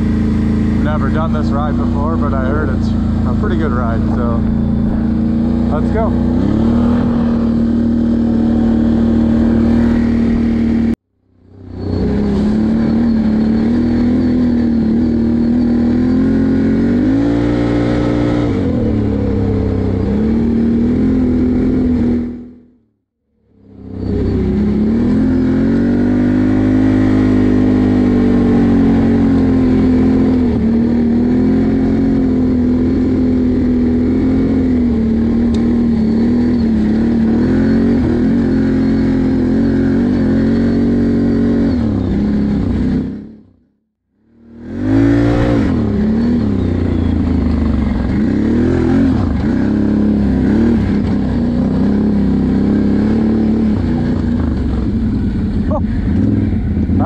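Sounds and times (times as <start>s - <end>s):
atv engine running: 0.0s - 22.7s, 23.5s - 43.6s, 44.3s - 57.0s.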